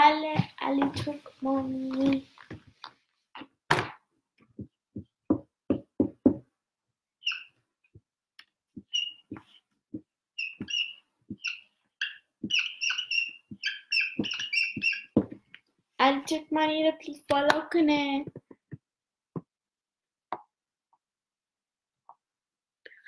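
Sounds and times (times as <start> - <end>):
marker squeaking on whiteboard: 7.2 - 7.6, 8.8 - 9.7, 10.4 - 15.5.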